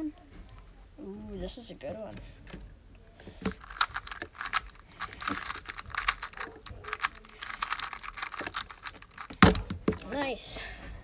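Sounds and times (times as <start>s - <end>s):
puzzle cube plastic clicks: 3.4s - 9.8s.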